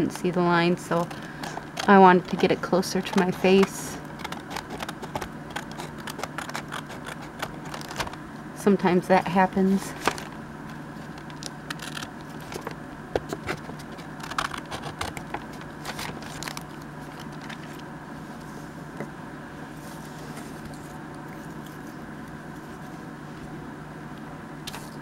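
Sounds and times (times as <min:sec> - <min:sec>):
steady low hum: 0:00.0 - 0:25.0
paper rustling and tapping: 0:01.0 - 0:06.6.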